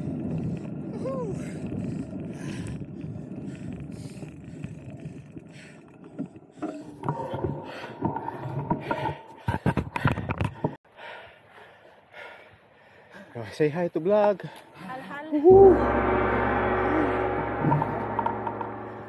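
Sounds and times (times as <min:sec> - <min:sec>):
rushing noise: 0:15.5 - 0:19.0
steady high whine: 0:15.5 - 0:19.0.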